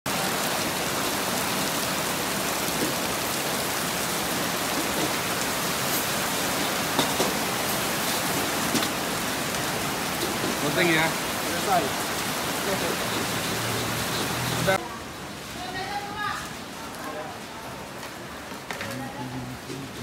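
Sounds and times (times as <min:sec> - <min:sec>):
heavy rain on a wet street: 0:00.0 - 0:20.0
raindrops tapping close by: 0:00.1 - 0:14.8.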